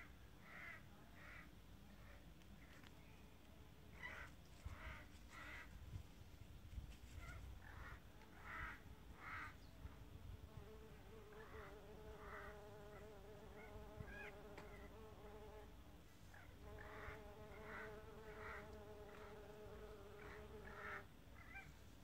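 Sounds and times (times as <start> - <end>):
bee buzzing: 10.5 - 15.7, 16.6 - 21.0.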